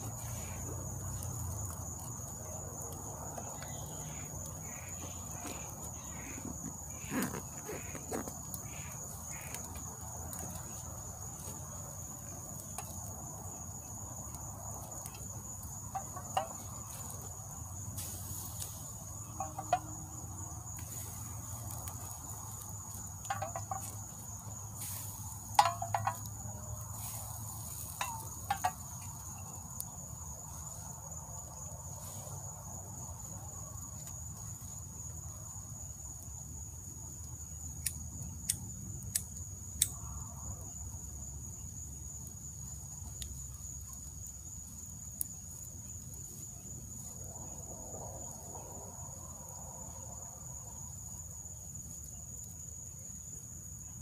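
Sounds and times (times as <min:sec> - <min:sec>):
high-pitched insect chorus: 0:00.0 - 0:54.0.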